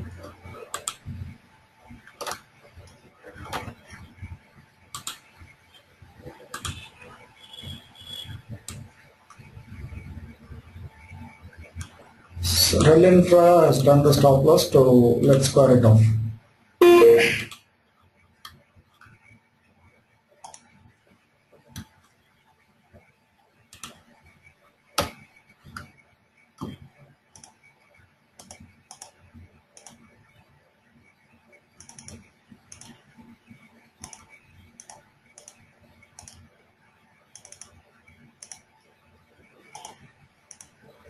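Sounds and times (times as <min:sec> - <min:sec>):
keyboard and mouse clicks: 0:00.2 - 0:01.1, 0:02.0 - 0:04.0, 0:04.9 - 0:05.3, 0:06.3 - 0:06.9, 0:20.4 - 0:20.8, 0:23.7 - 0:24.1, 0:26.6 - 0:27.7, 0:28.4 - 0:30.0, 0:31.8 - 0:33.1, 0:34.0 - 0:36.6, 0:37.3 - 0:38.7, 0:39.6 - 0:41.0.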